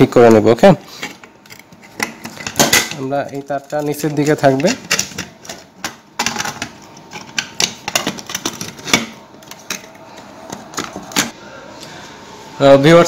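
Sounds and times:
clicks and knocks in metal box: 1.1 - 11.3.

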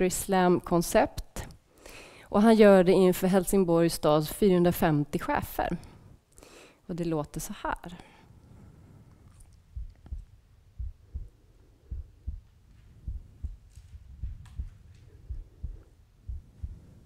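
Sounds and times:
faint hum: 7.8 - 17.0
low dull thumps in pairs: 9.8 - 16.9.

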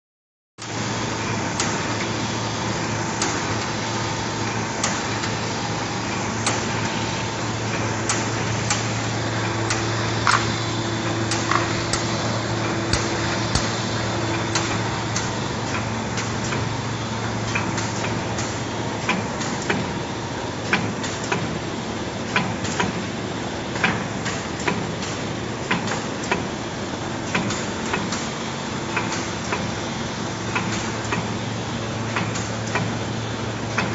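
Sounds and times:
coating machine humming: 0.7 - 24.7
sharp mechanical clacks: 4.8 - 5.4, 9.6 - 10.6, 11.3 - 16.7, 17.4 - 19.9, 27.2 - 29.7.

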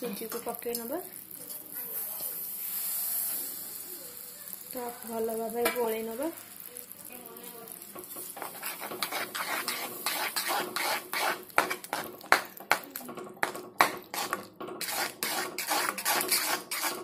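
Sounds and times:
steel spatula scraping a pan: 1.4 - 5.8, 7.7 - 12.8, 13.4 - 17.0.

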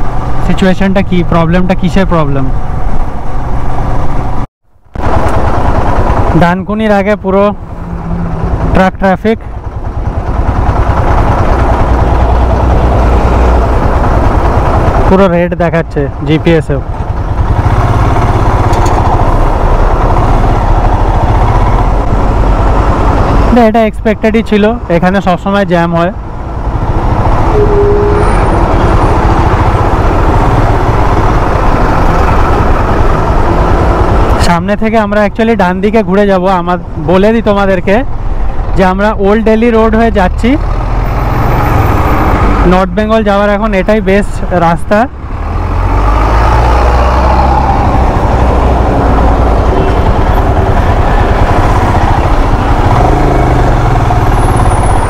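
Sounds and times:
engine and traffic rumble: 0.0 - 55.0
distant horn tone: 7.7 - 8.7, 27.5 - 29.1.

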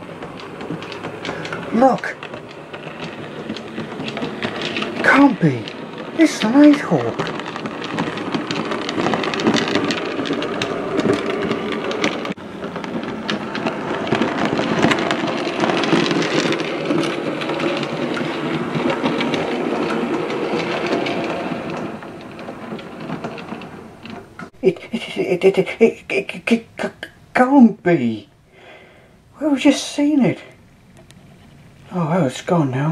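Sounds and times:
steam locomotive passing: 0.0 - 32.9.

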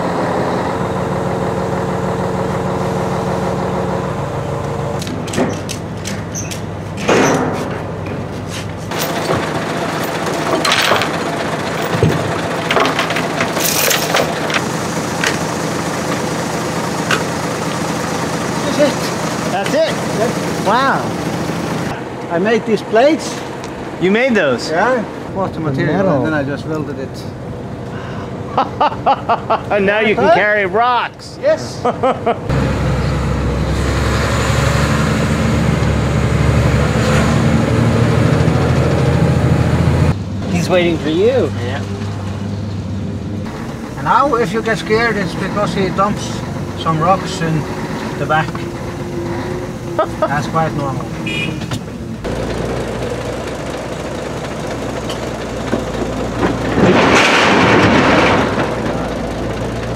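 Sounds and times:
truck engine idling: 0.0 - 29.7, 37.5 - 59.9
chain clanking into metal box: 12.7 - 14.6.

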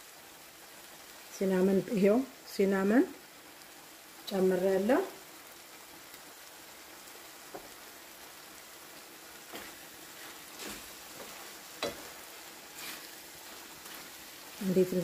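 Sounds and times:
food sizzling in frying pan: 0.0 - 15.0
wooden spatula scraping pan: 9.5 - 14.1.

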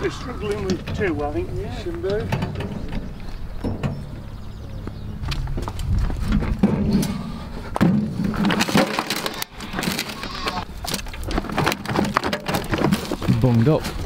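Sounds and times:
bucket thumping on metal wheelbarrow: 6.5 - 7.2, 7.8 - 9.3.

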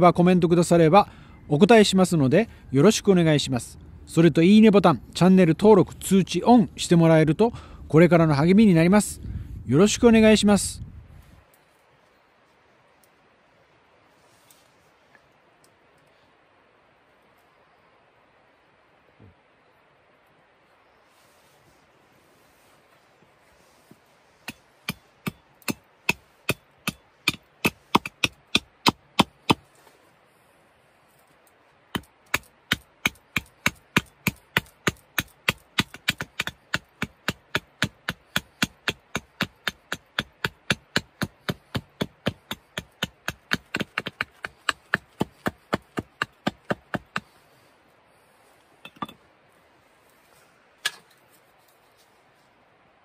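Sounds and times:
hatchet chopping branch: 24.4 - 29.6, 32.0 - 47.3.

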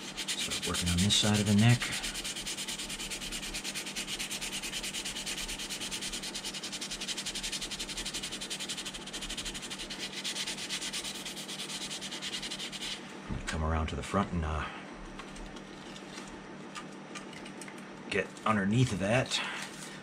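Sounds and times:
sandpaper rubbing on plastic: 0.0 - 13.0.

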